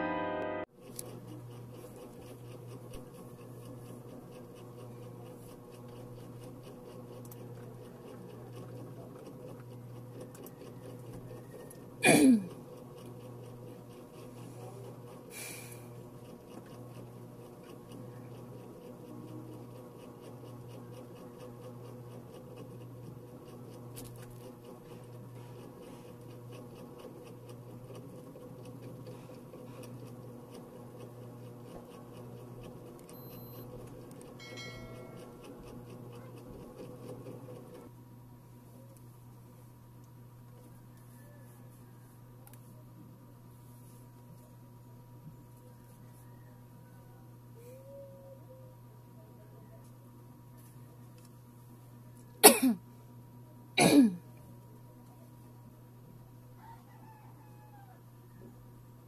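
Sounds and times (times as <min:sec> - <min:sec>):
sweep falling in pitch: 0:00.0 - 0:00.7.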